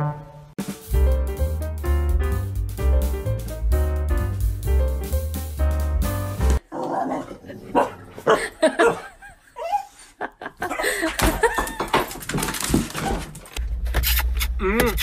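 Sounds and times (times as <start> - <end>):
dog barking: 7.7 - 9.1.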